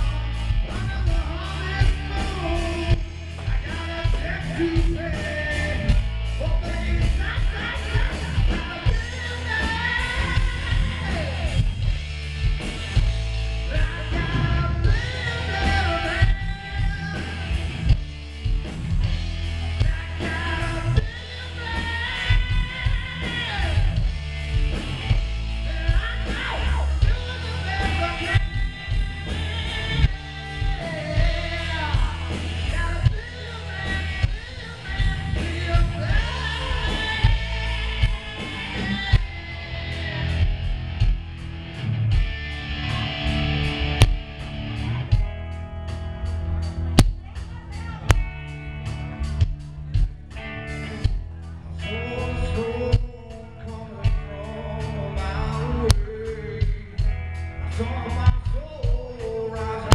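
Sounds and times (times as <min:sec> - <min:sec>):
person singing into microphone: 0:00.0 - 0:11.9, 0:13.6 - 0:18.0, 0:19.0 - 0:41.1, 0:50.8 - 0:59.9
bass guitar: 0:00.0 - 0:59.9
drum kit: 0:00.0 - 0:59.9
electric guitar: 0:00.0 - 0:59.9.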